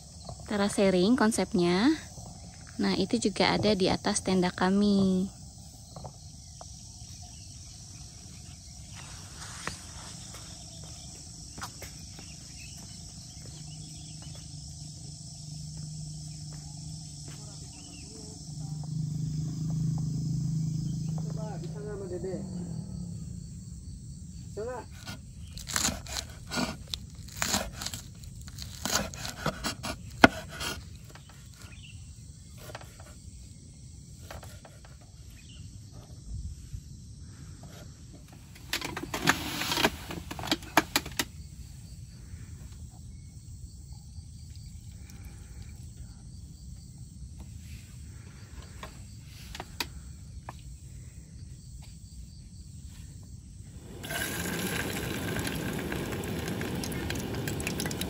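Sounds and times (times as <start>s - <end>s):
insects chirping: 0.0s - 58.0s
steady hiss: 53.7s - 58.0s.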